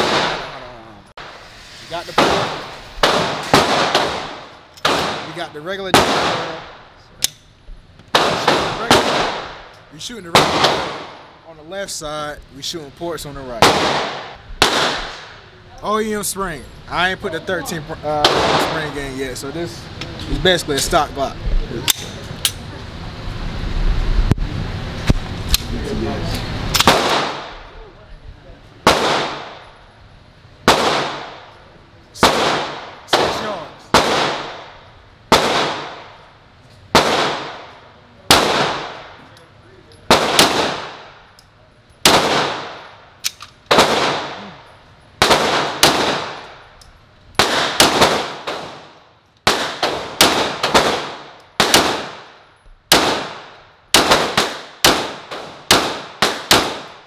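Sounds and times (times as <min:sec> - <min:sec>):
pistol shots echoing: 0:00.0 - 0:00.6, 0:02.2 - 0:06.7, 0:08.1 - 0:09.7, 0:10.3 - 0:11.2, 0:13.6 - 0:15.4, 0:26.8 - 0:27.6, 0:28.8 - 0:29.7, 0:30.6 - 0:31.5, 0:32.2 - 0:36.2, 0:36.9 - 0:39.2, 0:40.1 - 0:41.2, 0:42.0 - 0:43.0, 0:43.7 - 0:44.6, 0:45.2 - 0:46.6, 0:47.4 - 0:57.0.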